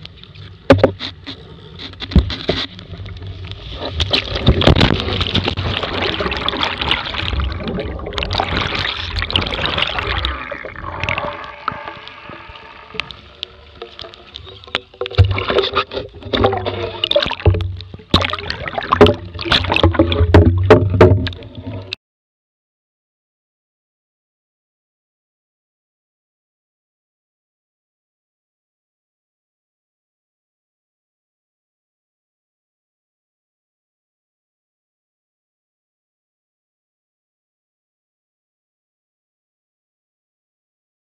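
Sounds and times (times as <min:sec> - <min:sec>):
water splashing and gurgling: 0:00.1 - 0:22.0.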